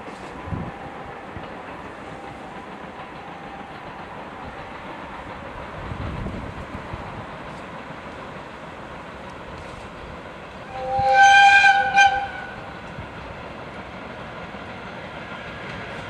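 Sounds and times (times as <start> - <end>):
freight train rolling: 0.0 - 16.0
locomotive horn: 10.7 - 12.7.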